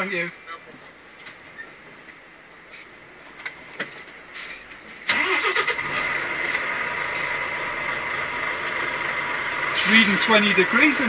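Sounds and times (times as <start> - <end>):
diesel engine starting and idling: 4.4 - 11.0.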